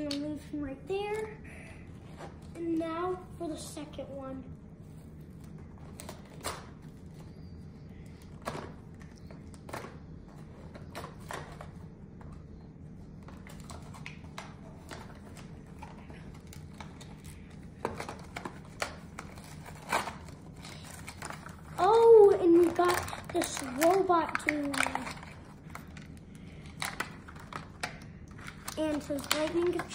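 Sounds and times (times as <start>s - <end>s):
low room hum: 0.0s - 29.9s
packaging being torn open: 18.0s - 25.4s.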